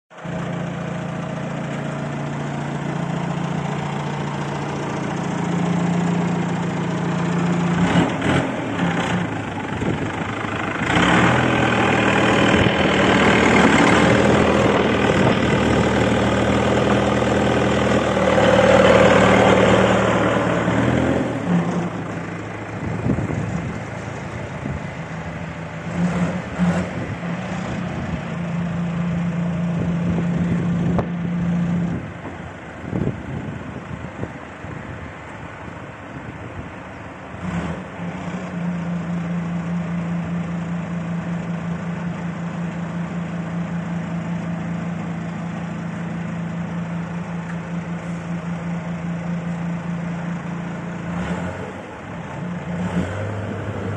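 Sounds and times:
diesel engine idling: 0:00.1 - 0:53.9.

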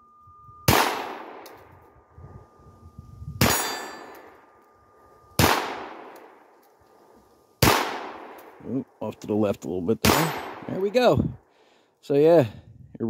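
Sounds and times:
steel plate ringing: 0:00.0 - 0:05.4, 0:10.1 - 0:10.6
bullet striking steel target: 0:00.6 - 0:02.0, 0:03.4 - 0:04.7, 0:05.3 - 0:06.5, 0:10.0 - 0:10.8
pistol shots: 0:00.7 - 0:01.6, 0:05.4 - 0:06.4, 0:07.6 - 0:08.6, 0:10.0 - 0:10.8.

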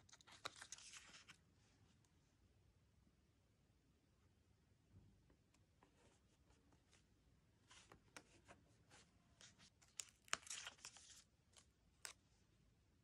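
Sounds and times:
paper crackling: 0:00.0 - 0:01.4, 0:09.4 - 0:12.2.

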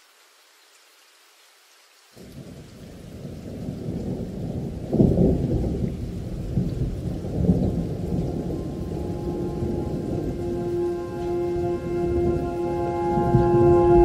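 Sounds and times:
steady rain: 0:00.0 - 0:14.0
rolling thunder: 0:02.2 - 0:14.0
sustained musical tones: 0:08.4 - 0:14.0.

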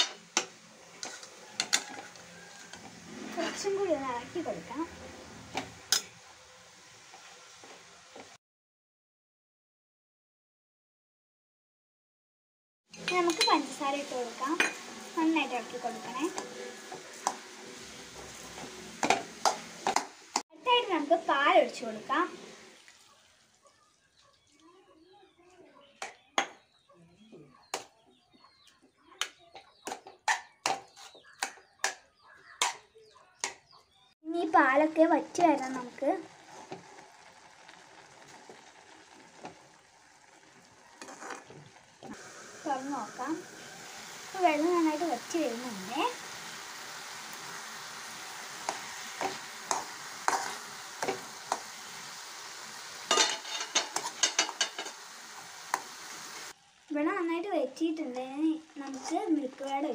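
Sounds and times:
metal spoon scraping a pan: 0:00.0 - 0:04.0, 0:05.5 - 0:06.2, 0:14.5 - 0:20.1, 0:29.6 - 0:33.6, 0:40.9 - 0:41.6, 0:48.6 - 0:51.8, 0:53.0 - 0:56.0, 0:58.8 - 0:59.9
food sizzling: 0:00.0 - 0:08.4, 0:12.9 - 0:26.8, 0:27.6 - 0:59.9.

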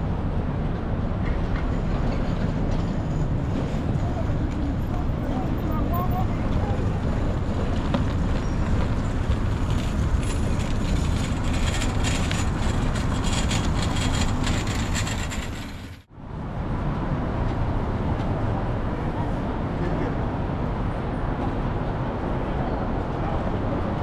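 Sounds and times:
avenue traffic rumble: 0:00.0 - 0:24.0
pedestrians passing: 0:00.0 - 0:24.0.

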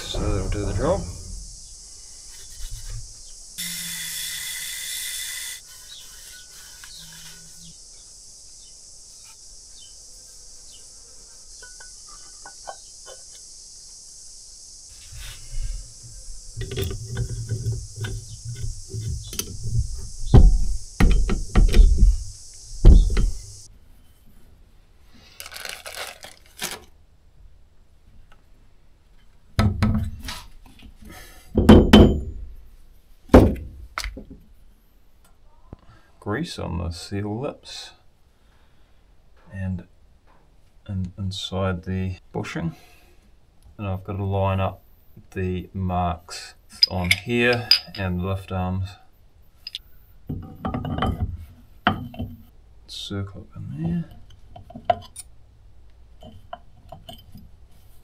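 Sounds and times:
brief hissing rush: 0:00.0 - 0:03.6
steady high hiss: 0:00.0 - 0:29.0, 0:36.0 - 0:56.4
plastic bag crinkling: 0:25.3 - 0:26.9
metal parts knocking on workbench: 0:49.7 - 0:51.3.

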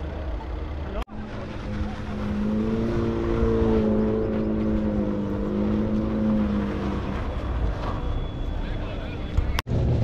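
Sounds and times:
car engine at high revs: 0:00.8 - 0:07.9
low rumble: 0:09.3 - 0:10.0.

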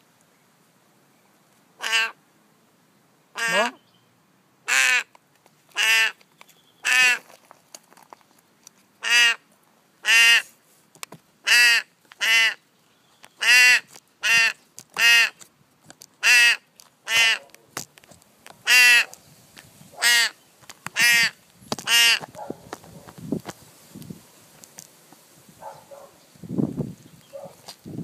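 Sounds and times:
raven harsh calls: 0:01.8 - 0:02.2, 0:03.3 - 0:03.8, 0:16.2 - 0:17.5, 0:18.6 - 0:19.2, 0:20.0 - 0:20.4.

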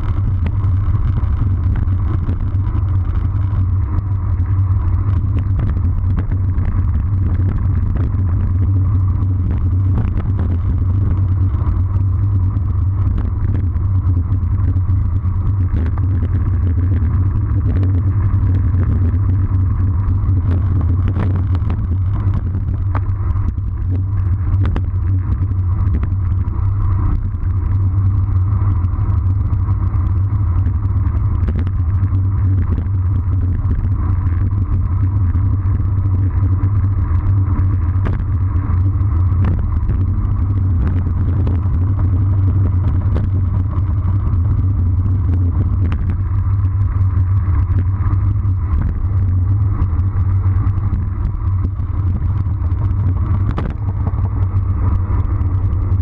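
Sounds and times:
tyre noise on asphalt: 0:00.0 - 0:56.0
wind rushing over microphone: 0:00.0 - 0:56.0
small clicks from bumps: 0:14.8 - 0:28.3.

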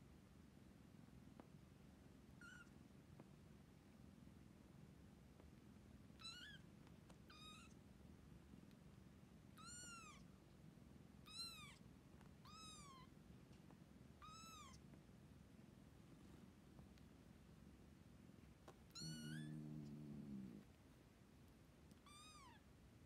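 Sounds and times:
kittens mewing: 0:18.9 - 0:20.7.

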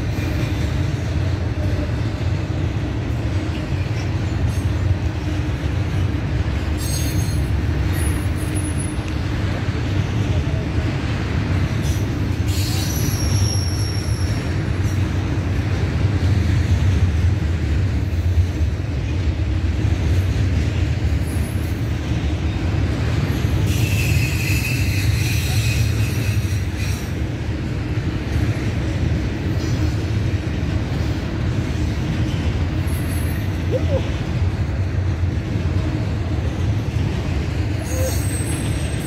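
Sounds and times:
freight train wheels rumbling: 0:00.0 - 0:39.0
high wheel squeal: 0:06.8 - 0:08.9, 0:11.9 - 0:14.5, 0:23.6 - 0:27.1, 0:37.8 - 0:39.0.

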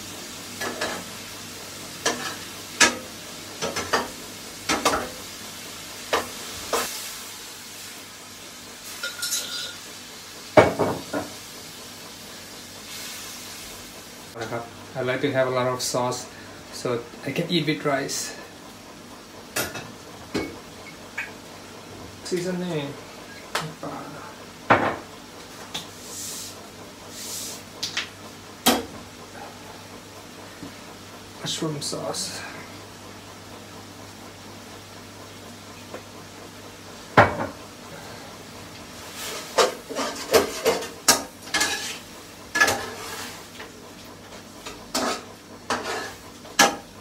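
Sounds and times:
faint sizzle from pan: 0:00.0 - 0:47.0
metal spatula scraping wok: 0:39.2 - 0:42.0, 0:44.9 - 0:46.2.

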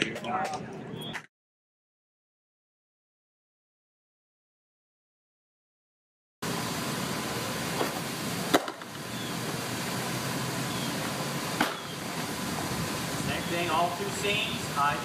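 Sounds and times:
steady background hiss: 0:06.5 - 0:15.0.

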